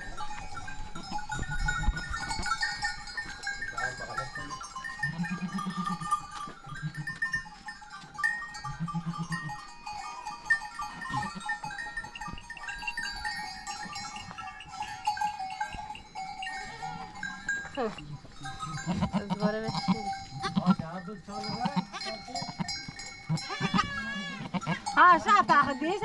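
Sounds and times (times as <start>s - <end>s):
goats bleating: 5.0s - 7.2s, 8.7s - 9.6s, 11.0s - 11.5s, 18.6s - 25.8s.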